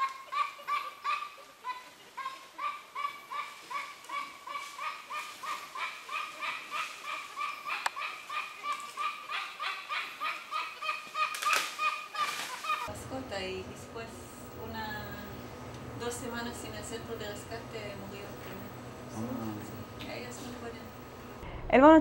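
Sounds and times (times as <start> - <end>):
animal calling repeatedly: 0.0 - 12.9.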